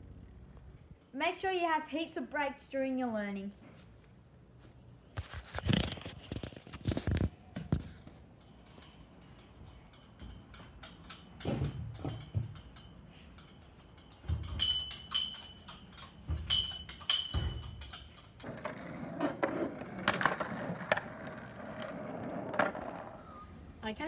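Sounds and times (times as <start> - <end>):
thumps and clanks on metal frame: 5.6 - 18.8
skateboard wheels rolling on concrete: 18.4 - 24.0.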